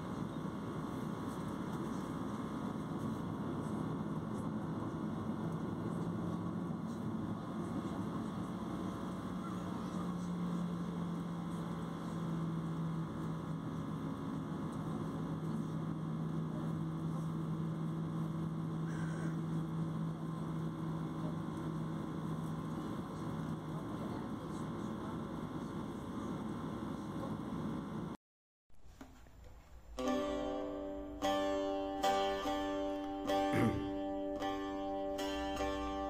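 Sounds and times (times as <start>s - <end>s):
jet engines rumbling: 0.0s - 28.2s
low hum: 0.0s - 28.2s.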